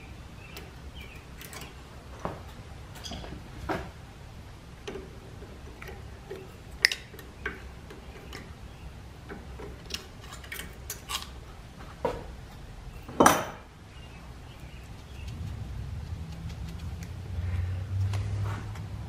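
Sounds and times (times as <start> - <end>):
pliers and wire clicking on metal: 9.2 - 11.4.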